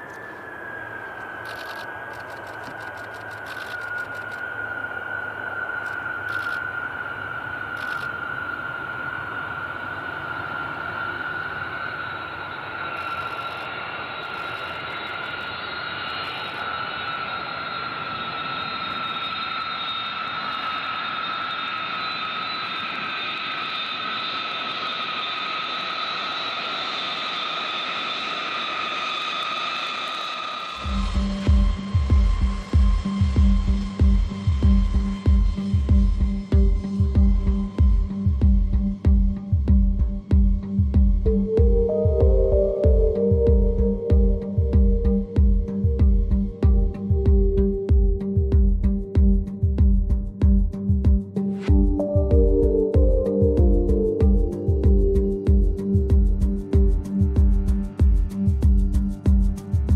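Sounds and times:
jet engines rushing and whining: 0.0 - 49.8, 50.8 - 59.9.

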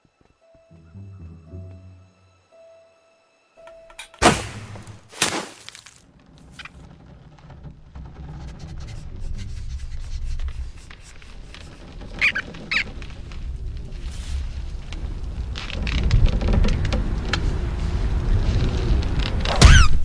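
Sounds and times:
arrow thwack: 4.0 - 5.8, 19.5 - 20.0
high cartoon squeaks: 8.4 - 13.0, 19.6 - 20.0.

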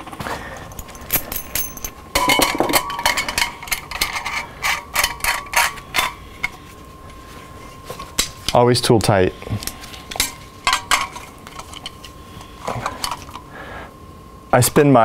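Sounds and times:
small metal clinks and taps: 0.6 - 6.6.

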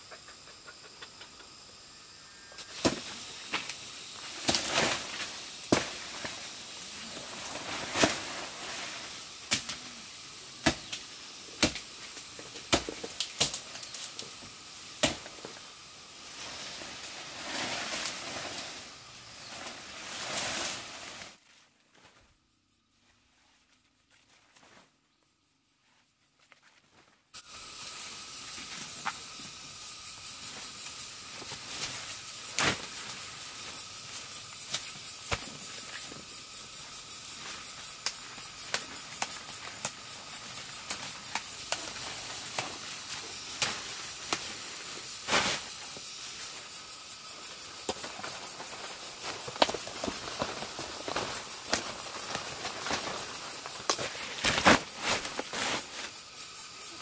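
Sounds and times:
light hiss: 0.0 - 21.5, 27.3 - 57.0
insects chirring: 0.0 - 57.0
sharp snaps and cracks: 10.6 - 14.4, 49.5 - 53.1, 53.8 - 55.4.

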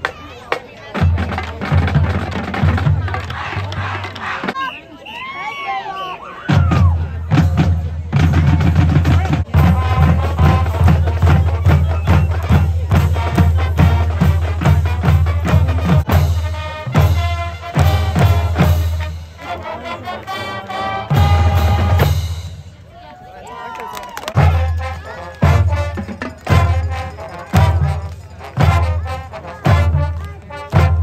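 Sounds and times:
drums keeping a steady beat: 0.0 - 4.8, 6.4 - 23.0, 24.3 - 31.0
brass playing a tune: 9.5 - 22.6, 24.4 - 31.0.

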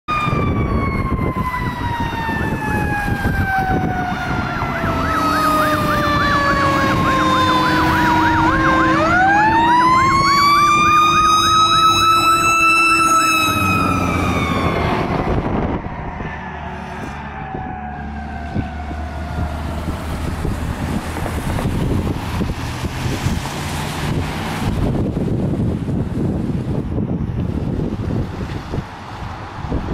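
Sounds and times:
electronic siren yelping: 0.1 - 22.4
mechanical siren wailing: 0.1 - 23.4.

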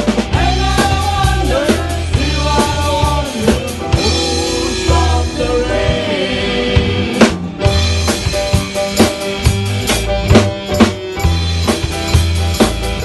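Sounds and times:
man singing lead vocal: 0.0 - 7.4
live rock band playing: 0.0 - 13.0.

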